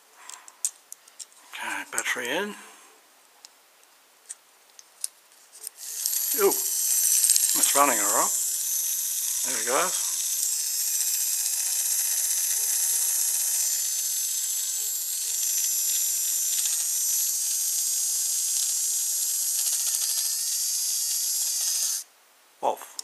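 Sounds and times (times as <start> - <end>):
tiny electric motor whirring: 5.6 - 22.1.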